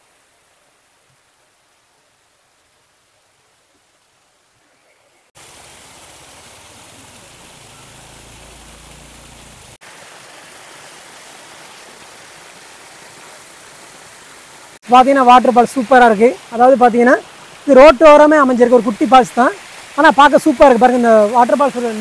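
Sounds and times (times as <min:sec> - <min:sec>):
waterfall splashing on rock: 0:05.3 - 0:22.0.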